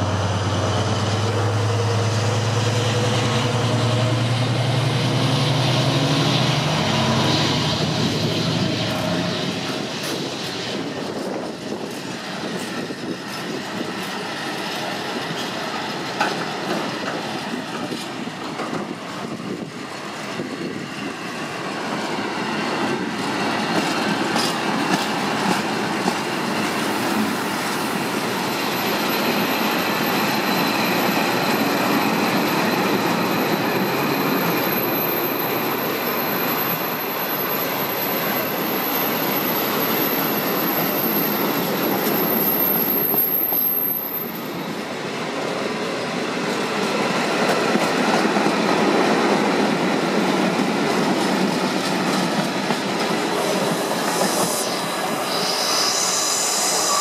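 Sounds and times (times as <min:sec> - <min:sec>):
train wheels rumbling and clacking: 0:00.0 - 0:57.0
high-pitched wheel squeal: 0:53.4 - 0:57.0.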